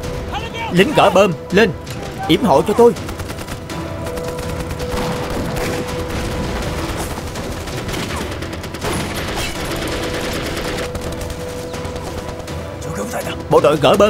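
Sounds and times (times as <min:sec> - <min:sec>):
dense gunfire: 0:03.0 - 0:12.8.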